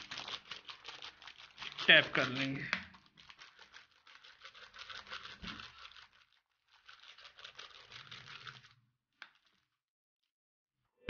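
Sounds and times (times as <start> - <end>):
paper crinkling and rustling: 0.0 - 9.8.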